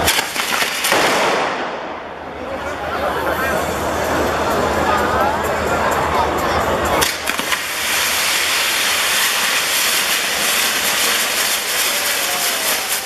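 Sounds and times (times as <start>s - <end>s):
fireworks hissing: 0.0s - 1.7s, 7.0s - 13.0s
firework crackles: 0.0s - 2.4s, 7.0s - 13.0s.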